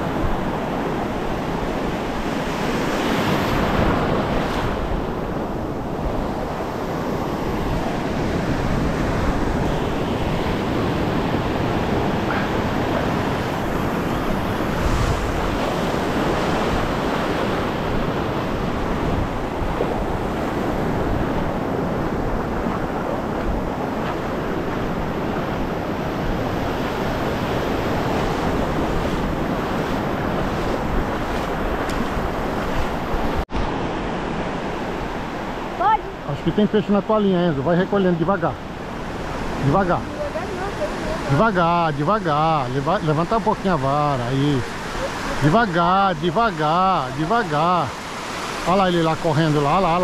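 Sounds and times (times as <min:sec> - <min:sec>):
wind buffeting microphone: 0:00.0 - 0:36.2
waves breaking on beach: 0:00.0 - 0:50.0.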